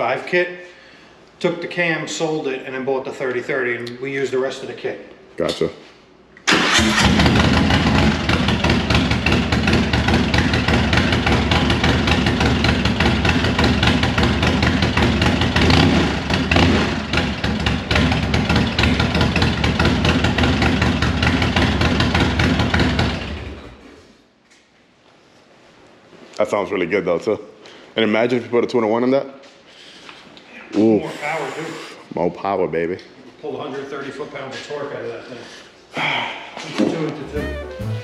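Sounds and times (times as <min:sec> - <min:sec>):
motorcycle engine idling: 0:07.1 - 0:23.6.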